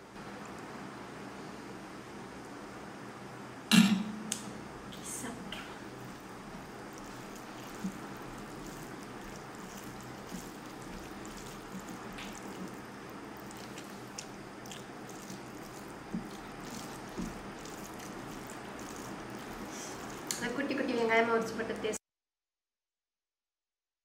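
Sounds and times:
fingers squishing wet rice: 0:06.0 - 0:20.5
mouth smacks while chewing: 0:13.4 - 0:20.4.

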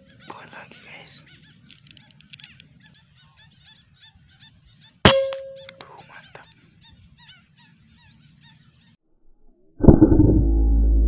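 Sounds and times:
birds chirping: 0:00.0 - 0:09.0
air rifle shot with metallic ring: 0:05.1 - 0:05.8.

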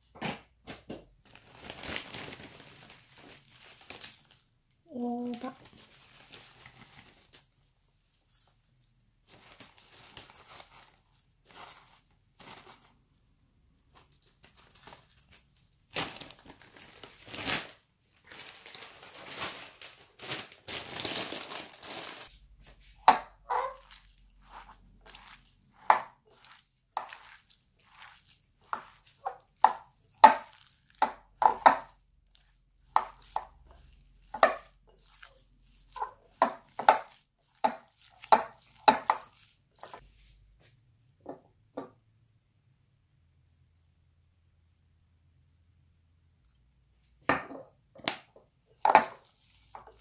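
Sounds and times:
hand kneading minced meat: 0:00.6 - 0:17.3, 0:20.9 - 0:41.2, 0:48.1 - 0:50.0
plastic bag crinkling: 0:01.2 - 0:22.4, 0:49.0 - 0:50.0.

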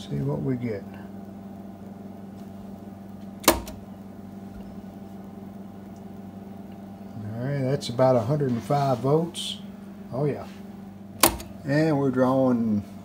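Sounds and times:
low electrical hum: 0:00.0 - 0:13.0
sharp click: 0:03.4 - 0:03.8, 0:11.2 - 0:11.6.

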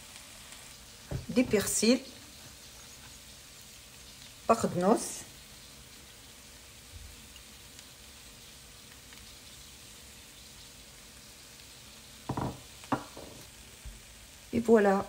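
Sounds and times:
vegetables sizzling in a pan: 0:00.0 - 0:15.0
short knock: 0:12.3 - 0:13.4.

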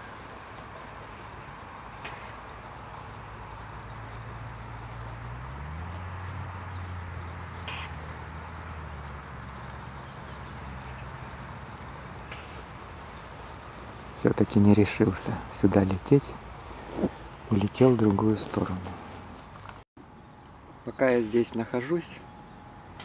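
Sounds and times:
low motor hum: 0:00.0 - 0:14.2
bird chirping: 0:01.6 - 0:17.5, 0:18.5 - 0:19.8.

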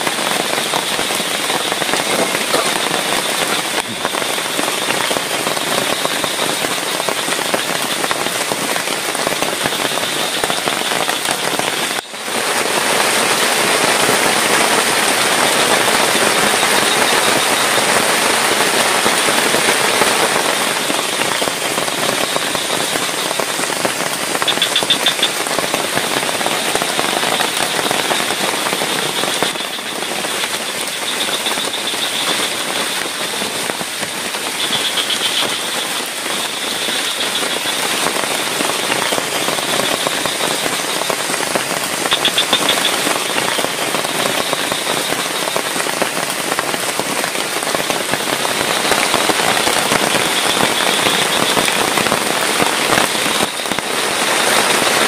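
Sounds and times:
heavy rain: 0:00.0 - 0:55.0.

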